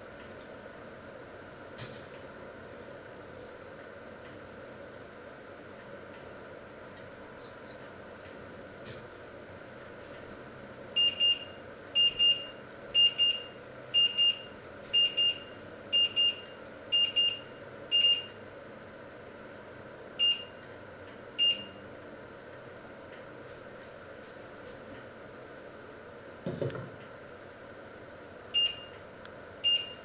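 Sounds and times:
cooktop timer alarm beeping: 11.0s - 18.4s, 20.2s - 20.6s, 21.4s - 21.8s, 28.6s - 29.0s, 29.6s - 30.0s
touch control beeps: 11.0s - 18.4s, 20.2s - 20.6s, 21.4s - 21.8s, 28.6s - 29.0s, 29.6s - 30.0s.

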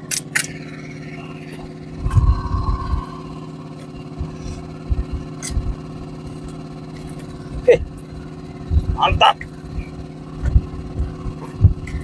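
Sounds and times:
small engine humming: 0.0s - 12.0s
low thumps: 2.0s - 5.9s.

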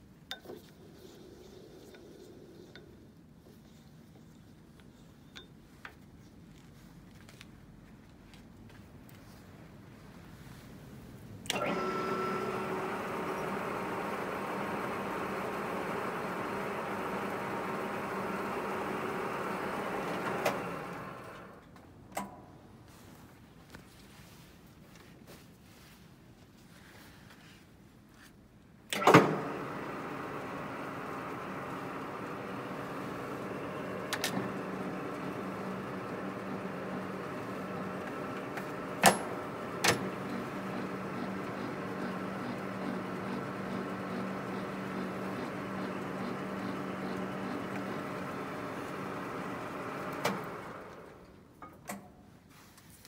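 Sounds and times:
lathe gearing whining: 11.4s - 21.6s, 28.9s - 51.4s
lathe switch clunk: 28.9s - 29.7s, 38.4s - 40.3s.

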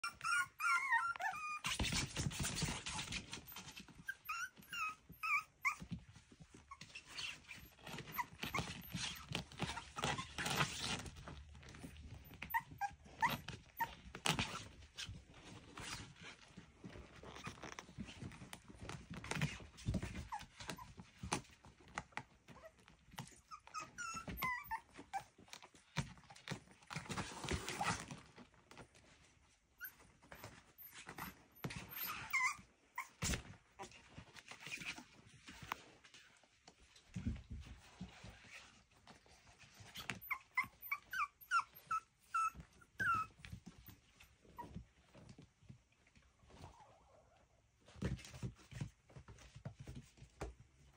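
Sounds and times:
puppies giving high cries: 0.0s - 5.9s, 6.7s - 11.1s, 11.9s - 14.2s, 23.5s - 25.4s, 29.8s - 33.4s, 39.7s - 44.8s
puppies scuffling on blanket: 0.1s - 50.9s.

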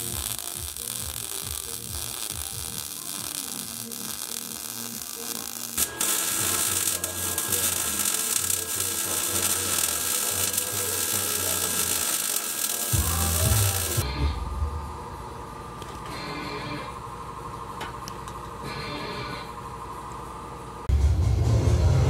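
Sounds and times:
welding arc crackling and hissing: 0.0s - 14.1s.

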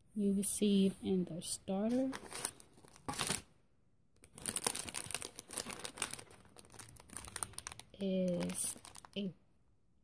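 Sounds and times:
plastic wrappers crinkling: 1.9s - 3.5s, 4.2s - 9.3s.

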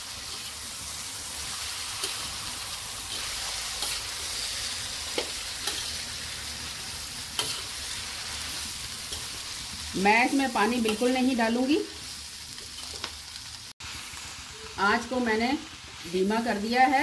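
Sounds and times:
vegetables sizzling in hot oil: 0.0s - 17.0s
spatula stirring in metal pan: 1.4s - 9.8s.

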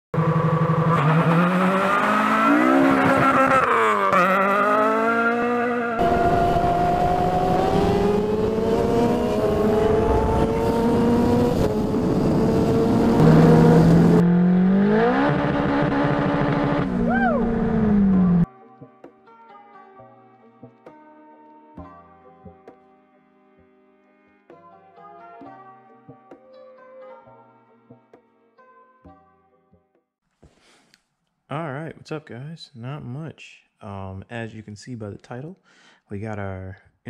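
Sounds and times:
car engine revving: 0.2s - 18.5s
motorcycle engine accelerating: 0.2s - 18.5s
heavy wind rush: 6.0s - 13.0s
rising and falling whistle: 17.0s - 17.5s.

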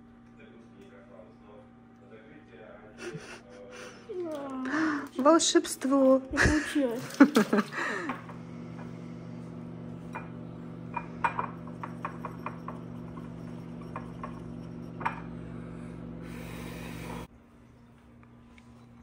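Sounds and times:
steady low hum: 7.6s - 19.0s.

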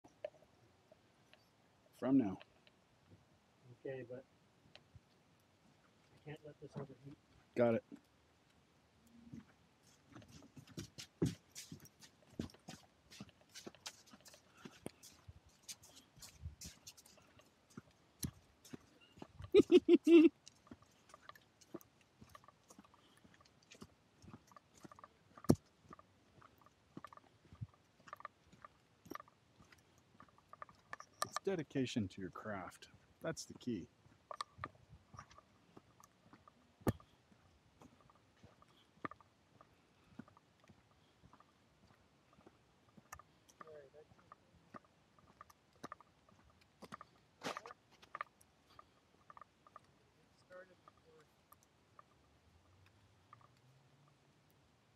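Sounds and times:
faint scattered clicks: 2.2s - 3.2s, 4.7s - 54.6s
footsteps crunching on snow: 9.8s - 19.3s.

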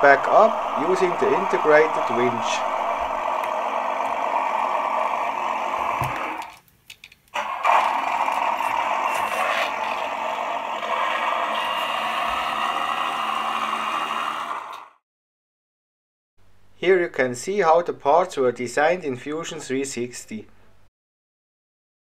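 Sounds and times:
simulated engine sound from speaker: 0.0s - 6.2s.

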